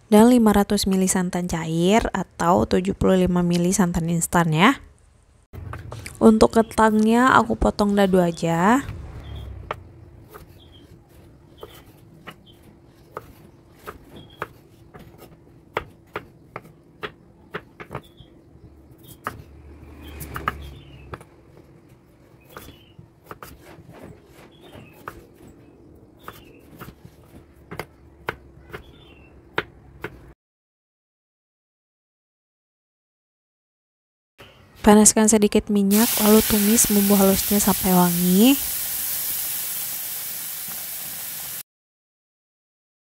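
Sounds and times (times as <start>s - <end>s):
knife chopping on wooden board: 11.6s - 18.3s, 22.4s - 25.4s, 26.2s - 30.3s.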